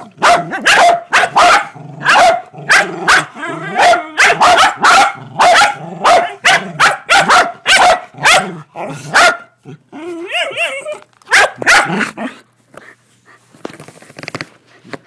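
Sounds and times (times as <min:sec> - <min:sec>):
dogs barking: 0:00.0 - 0:09.6, 0:10.3 - 0:12.3.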